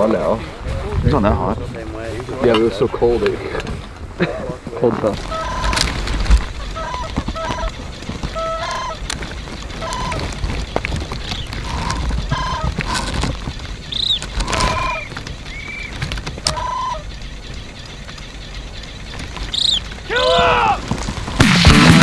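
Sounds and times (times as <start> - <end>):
geese and cranes honking: 5.2 - 21.1
high whistled bird notes: 11.2 - 18.0, 18.6 - 20.8.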